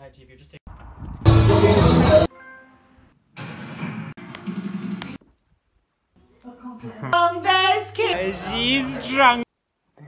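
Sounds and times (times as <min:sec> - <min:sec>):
loud music: 0:01.3 - 0:02.3
television programme sound: 0:06.2 - 0:10.0.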